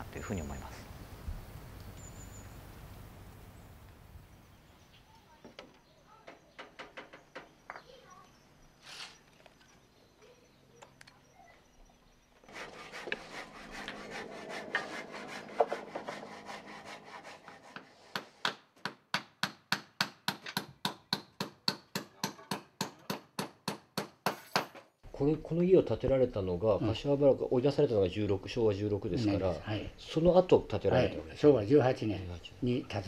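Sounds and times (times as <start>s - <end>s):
hand saw cutting wood: 12.4s - 18.6s.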